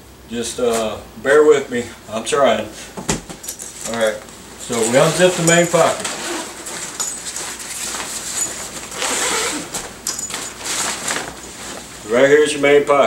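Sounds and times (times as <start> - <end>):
fabric rustling: 4.6 - 12.1
zipper being pulled open: 4.9 - 7.0, 8.5 - 9.8.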